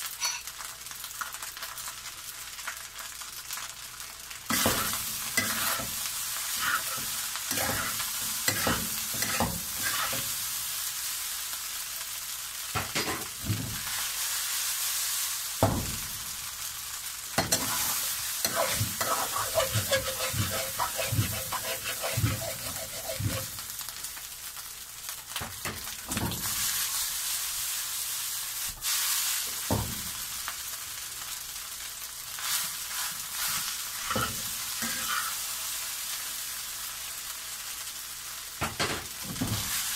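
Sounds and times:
rice sizzling in a wok: 0:00.0 - 0:39.9
metal spatula scraping a pan: 0:00.1 - 0:00.5, 0:04.5 - 0:10.4, 0:17.4 - 0:23.7, 0:32.4 - 0:35.5.

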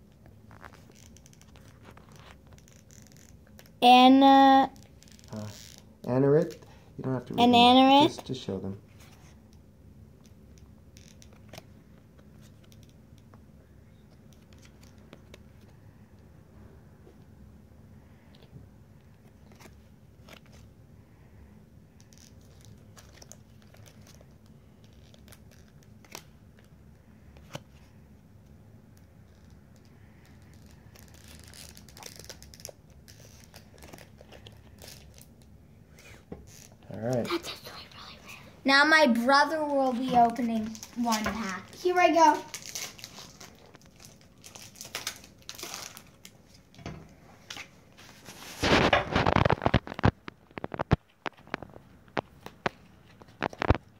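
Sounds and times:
low room hum: 0:00.0 - 0:53.9
foil wrapper crinkling: 0:22.0 - 0:26.7, 0:29.2 - 0:35.5, 0:40.3 - 0:46.7, 0:47.6 - 0:53.9.

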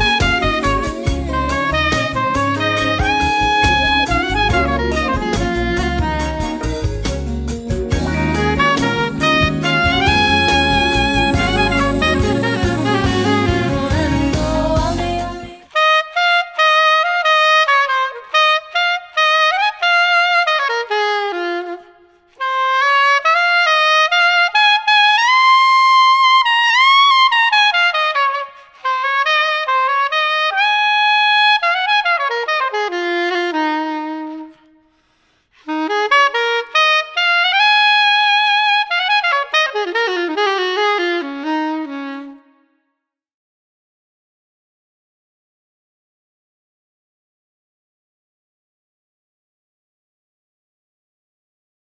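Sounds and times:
soprano saxophone solo: 0:00.0 - 0:42.8
player breathing: 0:34.8 - 0:35.6.

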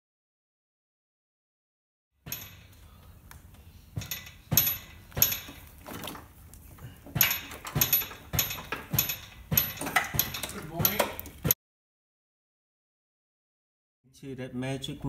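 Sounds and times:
metallic clanks: 0:02.3 - 0:03.0, 0:03.9 - 0:11.6.

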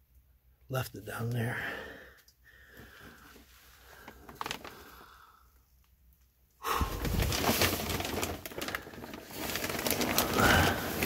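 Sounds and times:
plastic sheeting crinkling: 0:03.0 - 0:05.1, 0:06.7 - 0:11.0.

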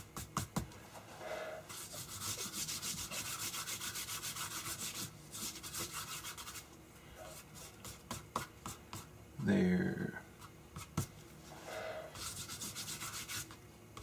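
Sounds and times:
hand rubbing paper: 0:00.9 - 0:09.1, 0:10.8 - 0:13.6.

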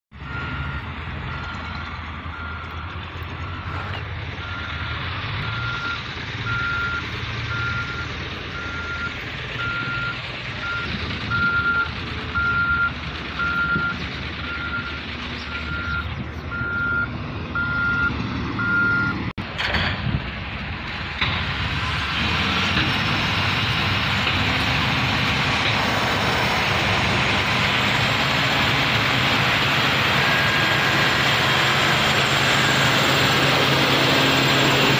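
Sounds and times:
engine running low: 0:00.1 - 0:34.9
reversing alarm beeping: 0:00.2 - 0:19.3, 0:29.6 - 0:33.2.

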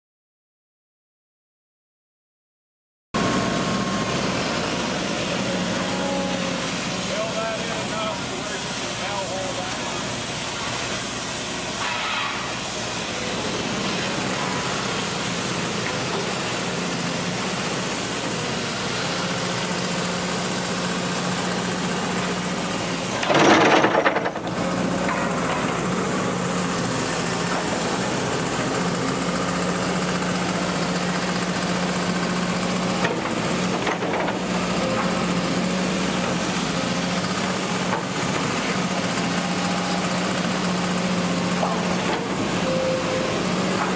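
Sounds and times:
excavator diesel engine humming: 0:03.2 - 0:11.8, 0:12.4 - 0:43.9
loud engine burst: 0:23.0 - 0:25.8.

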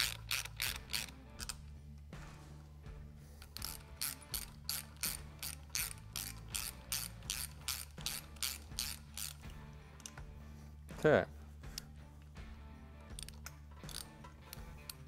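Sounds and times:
hand ratchet clicking: 0:00.0 - 0:01.7, 0:03.4 - 0:10.3, 0:13.0 - 0:15.0.

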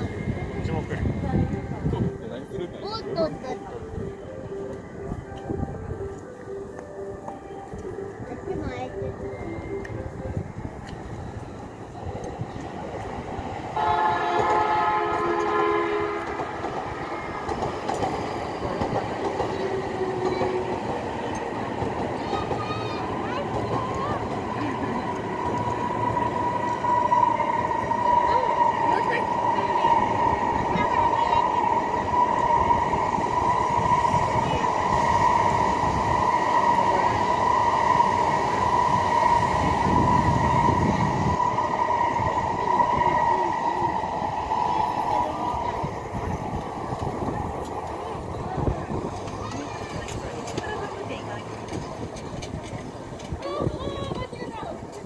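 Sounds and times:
train running on tracks: 0:00.0 - 0:55.0
train horn: 0:13.7 - 0:16.6.

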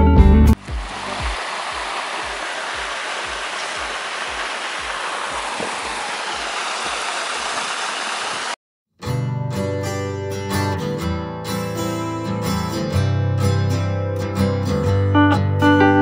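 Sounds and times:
river water rushing over rocks: 0:00.6 - 0:08.6.

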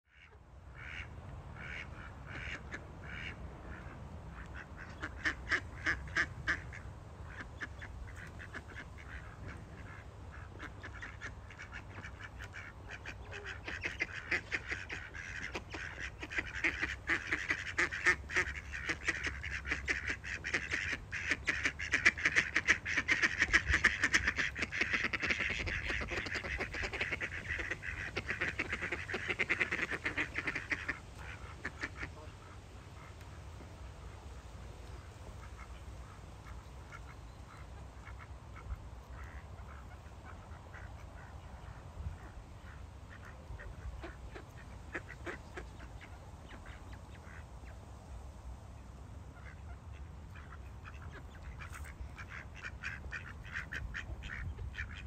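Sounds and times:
ducks quacking: 0:00.1 - 0:47.8, 0:49.1 - 0:55.0.

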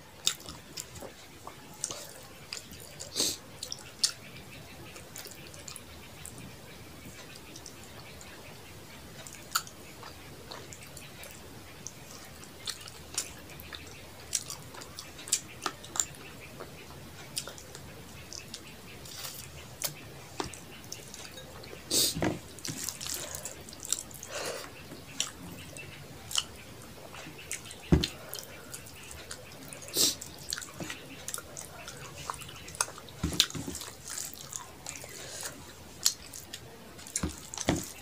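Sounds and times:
fingers mixing rice with curry: 0:09.2 - 0:38.0.

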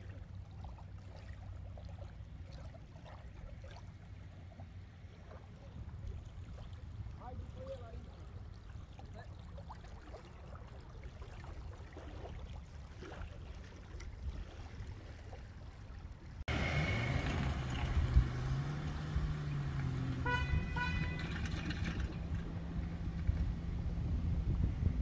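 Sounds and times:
car engine running: 0:16.5 - 0:23.6
wind on microphone: 0:17.7 - 0:25.0
car horn toots: 0:20.0 - 0:22.0.

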